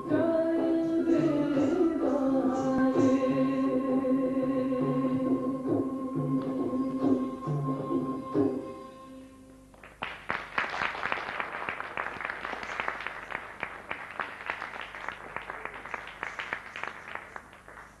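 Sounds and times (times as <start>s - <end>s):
music: 0.0s - 10.0s
audience applauding: 9.7s - 18.0s.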